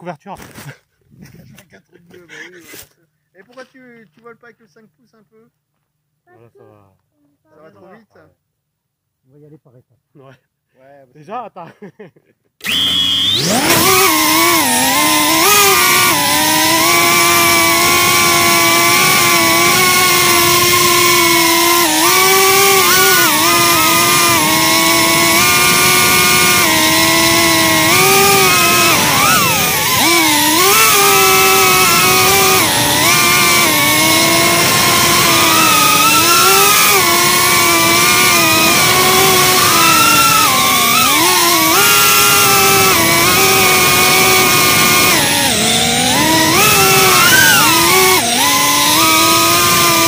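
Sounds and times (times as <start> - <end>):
quadcopter motors whining: 12.6 - 50.0.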